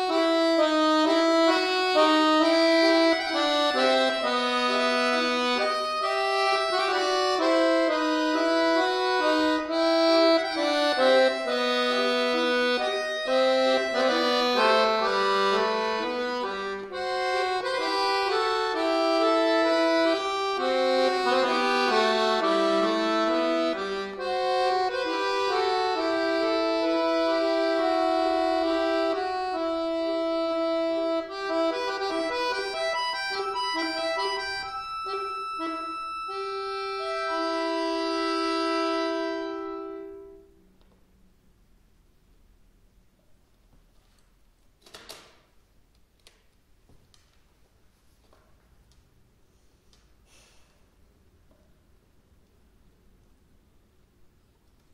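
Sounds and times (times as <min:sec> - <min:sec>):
button accordion melody: 0:00.0 - 0:40.6.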